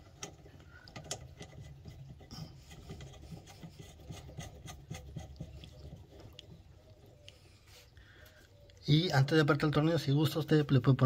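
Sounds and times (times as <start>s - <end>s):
faint clicks and rubbing: 0.0s - 8.0s.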